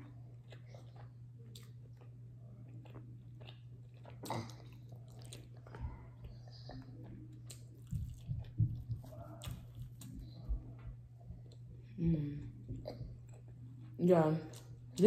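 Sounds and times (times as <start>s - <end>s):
steady low hum: 0.0s - 15.0s
wet chewing and mouth smacks: 0.1s - 11.7s.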